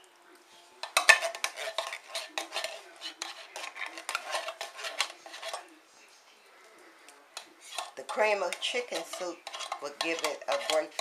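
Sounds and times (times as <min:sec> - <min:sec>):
metal spoon scraping a metal pan: 0:00.8 - 0:05.7, 0:07.4 - 0:11.0.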